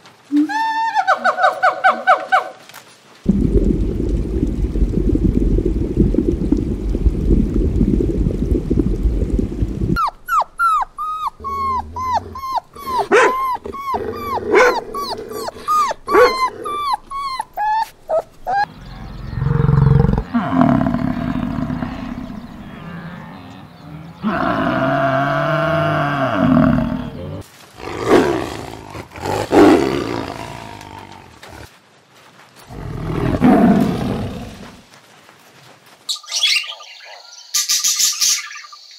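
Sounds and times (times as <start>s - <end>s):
low rumble: 3.3s - 10.0s
low drawn-out animal calls: 10.0s - 28.1s.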